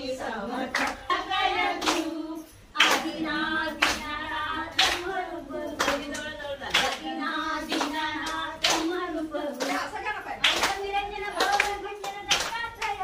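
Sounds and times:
women singing together: 0.0 - 13.0
hands clapping in time: 11.4 - 13.0.

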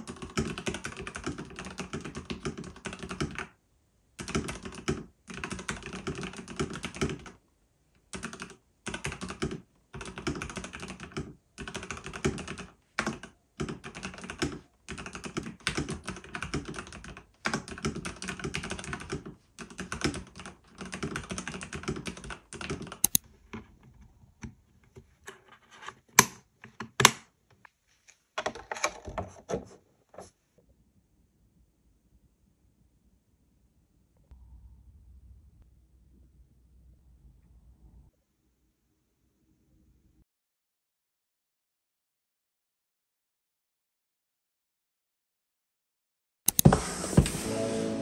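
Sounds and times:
typing on computer keyboard: 0.0 - 3.6, 4.2 - 7.4, 8.1 - 23.2.

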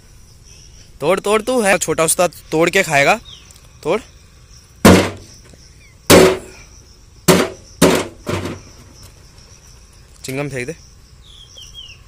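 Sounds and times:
snail shell being struck: 4.8 - 5.3, 6.1 - 6.5, 7.3 - 8.4.

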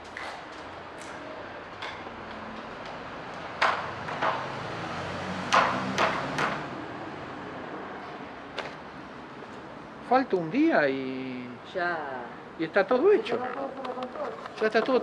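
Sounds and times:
steady background noise: 0.0 - 15.0
hammer strikes: 5.5 - 6.6.

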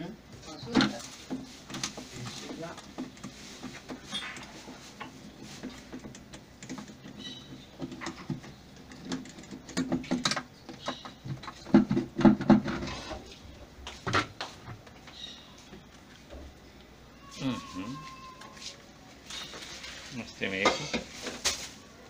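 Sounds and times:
hollow plastic knocks and scrapes: 0.7 - 14.9.

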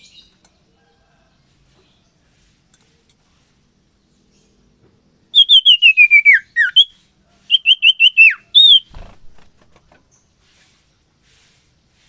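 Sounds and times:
bird whistling repeated notes: 5.3 - 9.0.

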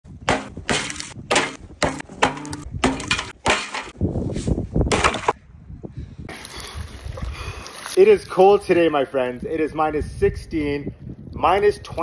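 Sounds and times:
axe chopping ice: 0.3 - 3.9.

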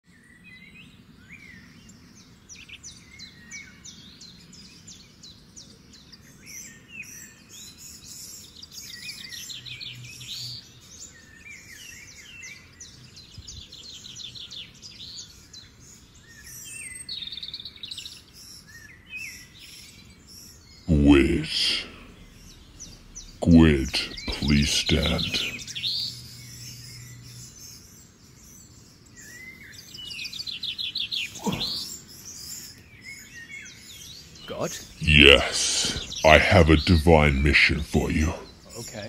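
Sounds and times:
faint outdoor hum: 20.9 - 27.7, 31.3 - 32.4, 34.5 - 39.0
birds singing and chirping: 21.8 - 35.0.

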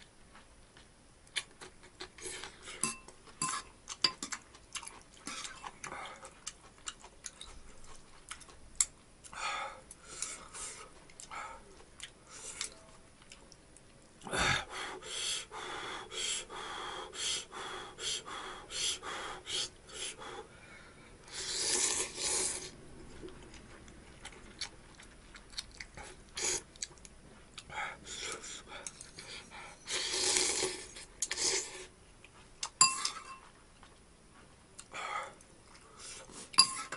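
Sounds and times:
slurping noodles: 21.3 - 22.7, 29.9 - 31.9.

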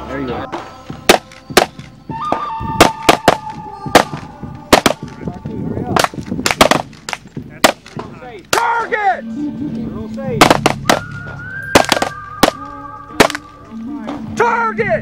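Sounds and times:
gunshots: 2.8 - 5.2, 6.0 - 8.7, 10.4 - 11.2, 11.8 - 12.6, 13.2 - 13.5.

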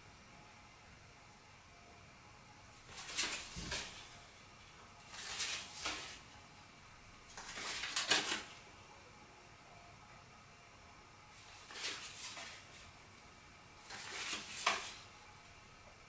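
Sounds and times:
playing cards rustling and clicking: 2.9 - 4.1, 5.1 - 6.2, 7.3 - 8.6, 11.5 - 12.8, 13.8 - 15.1.

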